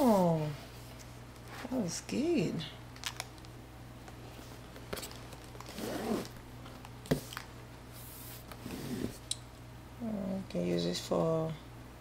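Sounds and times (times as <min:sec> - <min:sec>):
packaging rasping and rustling: 0:04.2 - 0:09.2.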